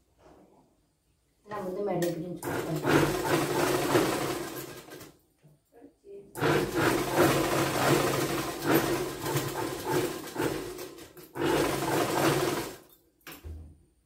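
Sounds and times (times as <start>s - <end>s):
sewing machine stitching: 2.4s - 5.1s, 6.4s - 12.9s.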